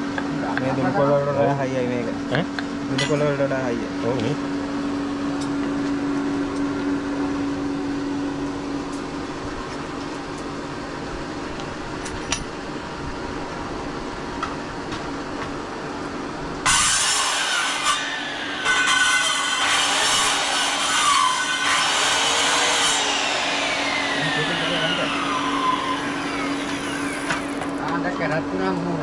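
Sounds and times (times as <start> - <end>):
low workshop background: 1.7 - 28.4
circular saw cutting horn: 16.7 - 27.7.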